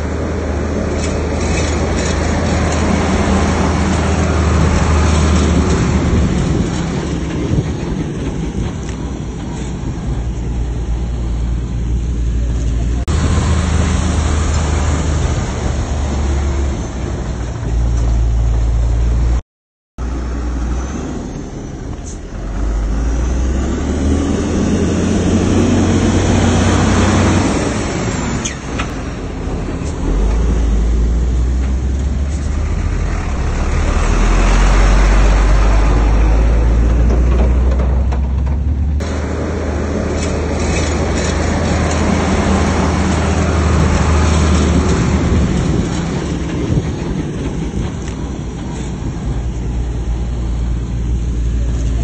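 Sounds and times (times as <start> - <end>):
heavy diesel machinery engine: 0.0 - 19.4, 20.0 - 52.0.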